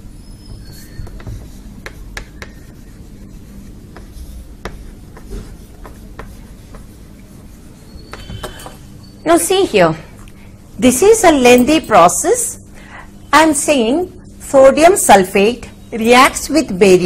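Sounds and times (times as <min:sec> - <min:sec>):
chalk scraping on chalkboard: 0:00.3 - 0:08.8
chalk tapping on board: 0:00.4 - 0:08.7.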